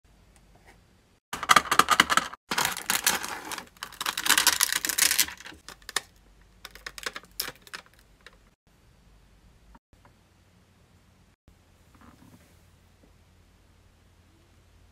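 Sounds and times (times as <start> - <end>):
plastic tape packaging crackling: 1.4 - 8.5.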